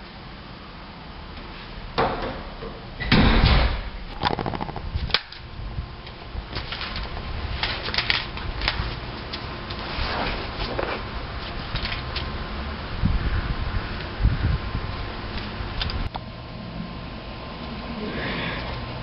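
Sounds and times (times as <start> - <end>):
sliding glass door rolling open: 6.6 - 17.9.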